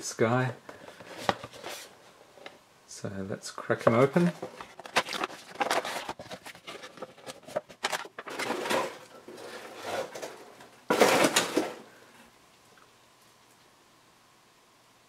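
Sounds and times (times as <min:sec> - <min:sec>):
plastic packaging rustling: 0:03.8 - 0:11.9.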